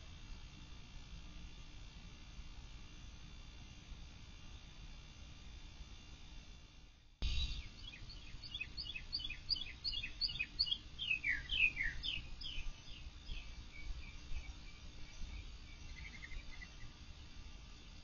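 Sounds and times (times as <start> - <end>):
songbird singing: 7.2 - 17.0.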